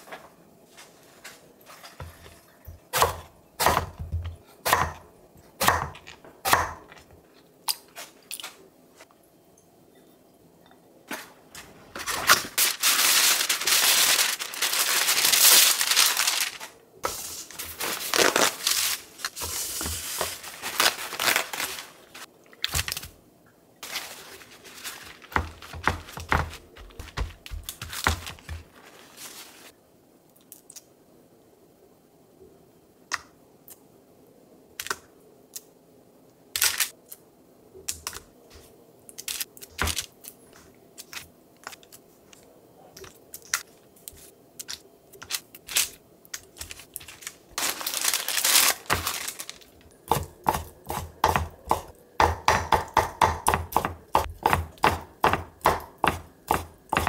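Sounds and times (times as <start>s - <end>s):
knife chopping on wooden board: 50.1s - 57.0s.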